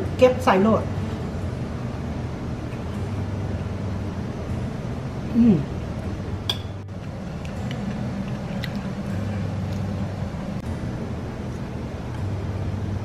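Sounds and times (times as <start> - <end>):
low steady hum: 0.0 - 13.0
woman humming mmm: 5.3 - 5.8
metal spoon clicking on dishes: 6.5 - 6.7.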